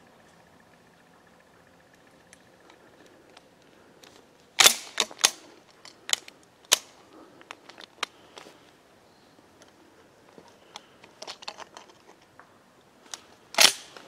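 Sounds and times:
shotgun action clacking: 0:04.6 - 0:05.4.

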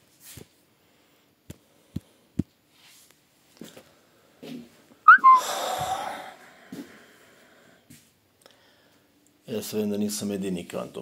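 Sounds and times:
squeaky rising whistle: 0:05.1 - 0:05.5.

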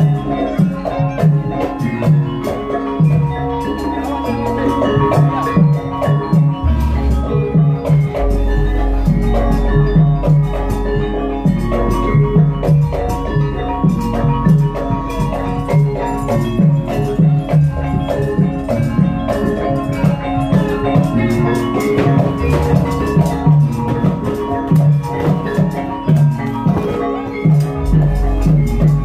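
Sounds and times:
metallophone tones: 0:00.0 - 0:29.0
low drum beats: 0:06.5 - 0:18.0, 0:27.7 - 0:29.0.

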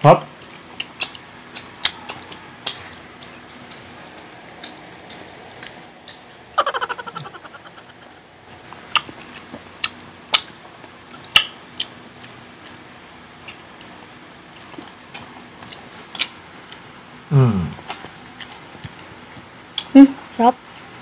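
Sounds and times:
crunching and chewing food: 0:00.3 - 0:06.5, 0:08.5 - 0:21.0
falling voice sound: 0:06.6 - 0:08.2, 0:17.3 - 0:17.8.

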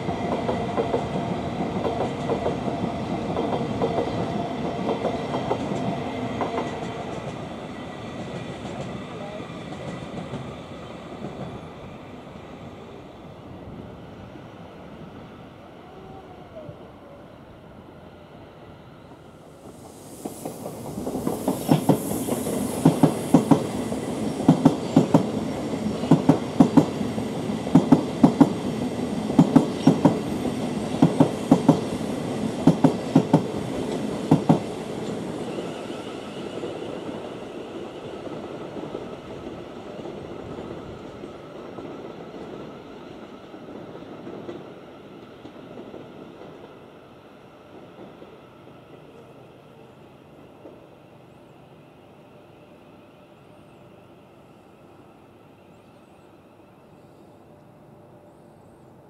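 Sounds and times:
train wheels clacking over track: 0:00.0 - 0:11.7, 0:19.6 - 0:46.9
train rumble: 0:00.0 - 0:50.9.

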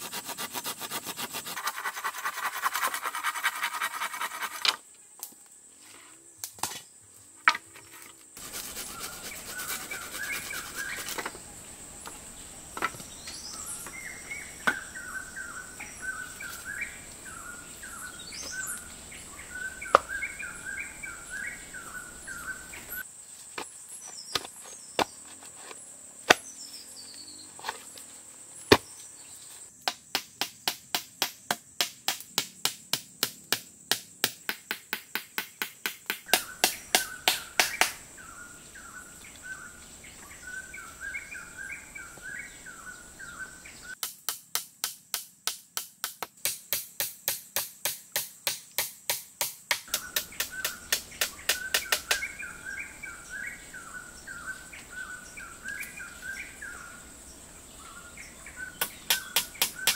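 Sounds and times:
bird chirps: 0:36.2 - 0:44.0, 0:49.8 - 0:57.1, 0:57.8 - 0:59.9.

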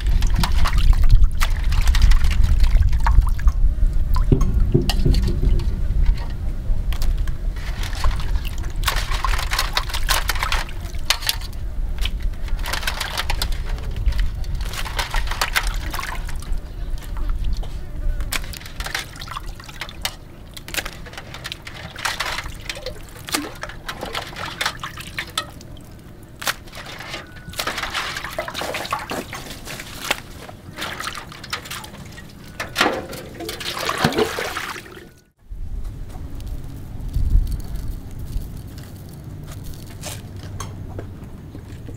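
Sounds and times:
water dripping and splashing: 0:00.0 - 0:17.7, 0:18.3 - 0:35.4
water splashing onto concrete: 0:18.3 - 0:35.2.

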